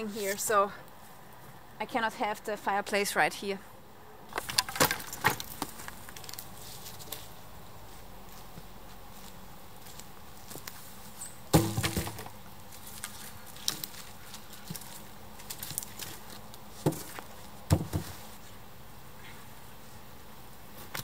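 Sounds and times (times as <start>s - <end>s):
footsteps on twigs and leaves: 4.3s - 18.4s
wooden pole knocking against logs: 16.8s - 18.2s.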